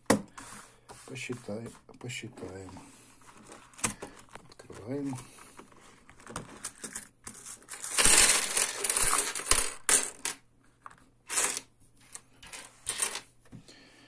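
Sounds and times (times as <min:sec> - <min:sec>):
coins clattering onto wooden table: 0:06.7 - 0:10.4, 0:11.3 - 0:13.3
coins clinking: 0:06.8 - 0:10.4, 0:11.3 - 0:11.7, 0:12.4 - 0:13.3.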